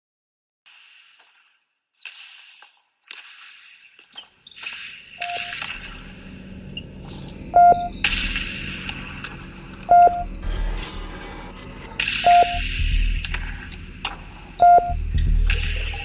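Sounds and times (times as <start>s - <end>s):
short pitched beeps: 5.2s - 5.6s, 7.6s - 8.0s, 9.9s - 10.3s, 12.3s - 12.7s, 14.6s - 15.0s
low electronic hum: 9.8s - 10.8s, 12.0s - 16.0s.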